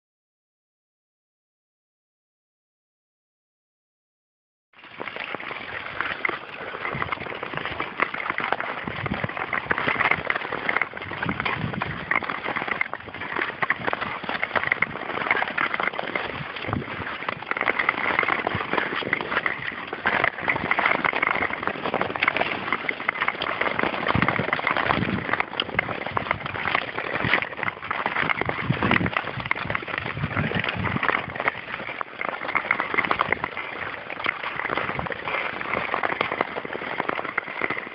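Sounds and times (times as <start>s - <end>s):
skates scraping over ice: 4.8s - 37.9s.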